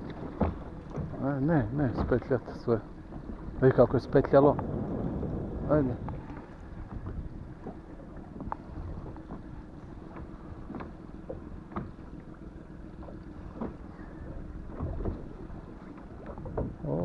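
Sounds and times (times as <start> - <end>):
wind buffeting microphone: 0.0 - 12.1
water lapping against boat: 0.0 - 17.0.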